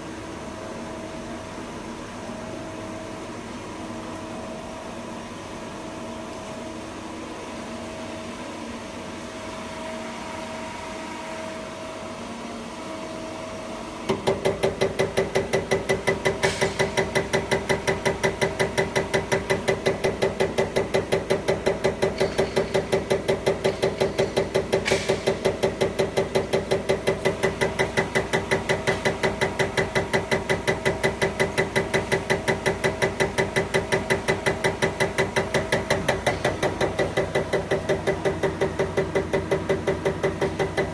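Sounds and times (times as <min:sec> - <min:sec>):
test bench mechanical hum: 0:00.0 - 0:40.9.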